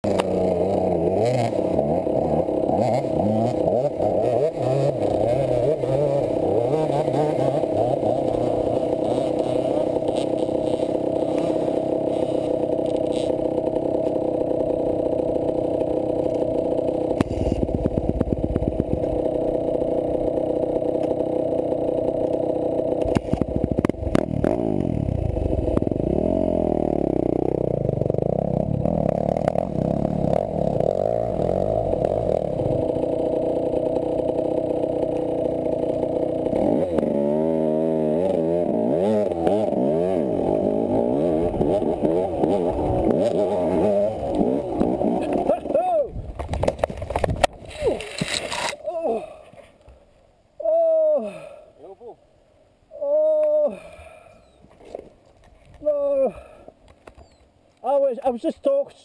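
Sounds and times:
motorcycle engine at low revs: 0.0s - 50.0s
motorcycle knocks and rattles: 1.2s - 26.2s, 46.2s - 47.7s.

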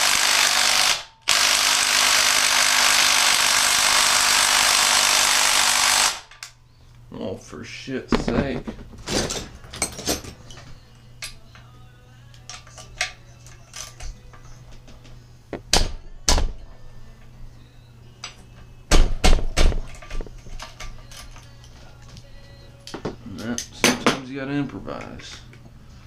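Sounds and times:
steady low hum: 5.4s - 26.0s
metal tools clinking on engine parts: 8.4s - 11.6s, 19.9s - 21.7s.

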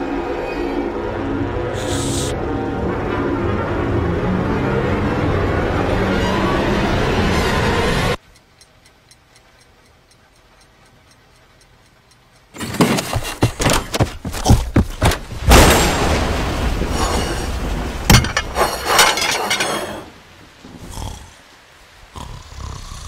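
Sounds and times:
faint clock-like ticking: 8.2s - 13.6s.

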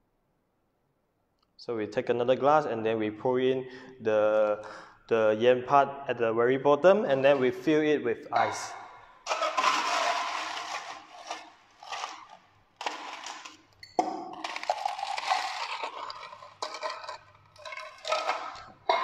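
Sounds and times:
ice cubes clinking into glass: 9.3s - 19.0s.

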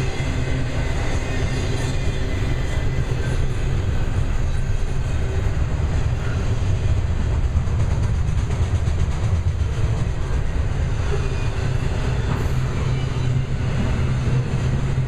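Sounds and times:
steel wheels rumbling on rail: 0.0s - 15.0s.

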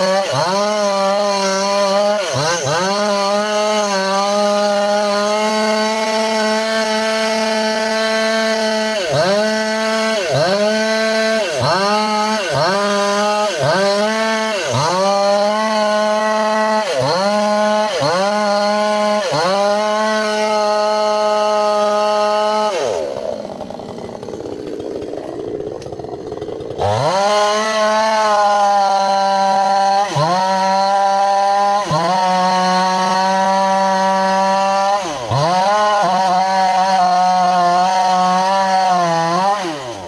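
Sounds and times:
chainsaw cutting wood: 0.0s - 40.0s.

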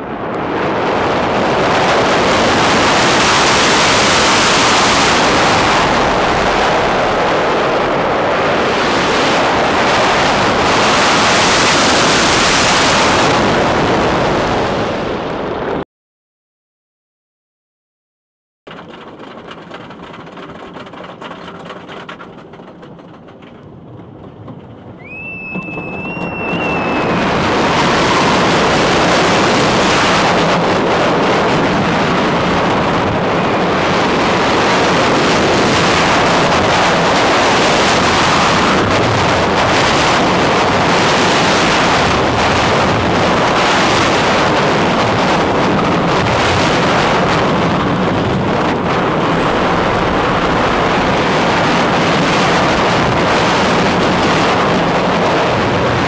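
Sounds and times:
wind rushing over microphones: 0.0s - 15.8s, 18.8s - 56.0s
wheels rumbling on wooden track: 18.7s - 56.0s
brief high squeal: 25.0s - 27.1s.

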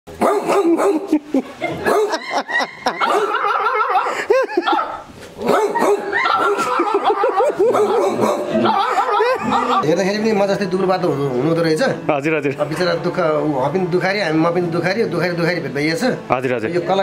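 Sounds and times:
people imitating dog barks: 0.2s - 9.8s.

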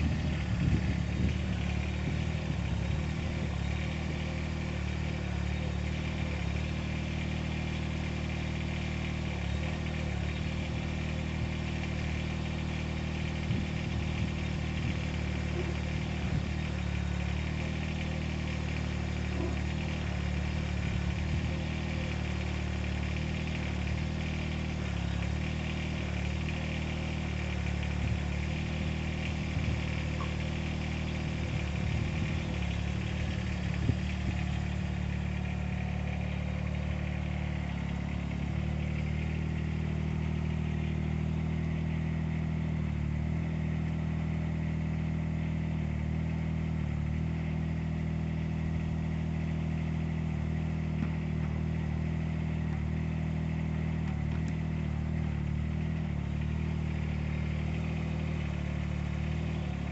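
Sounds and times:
diesel engine running under load: 0.0s - 59.9s.

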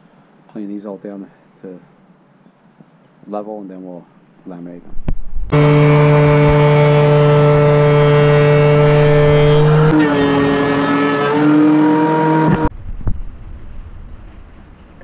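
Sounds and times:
thickness planer motor whine: 5.5s - 12.7s.

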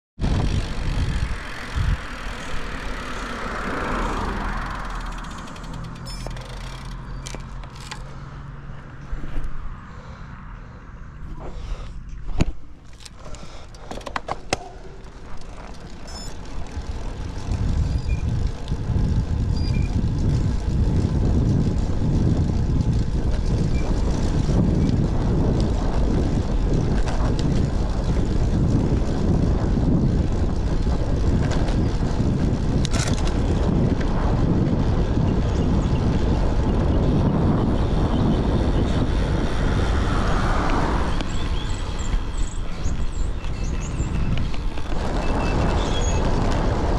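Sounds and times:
wind buffeting microphone: 0.2s - 8.4s, 11.2s - 46.9s
sharp clicks: 4.7s - 8.1s.

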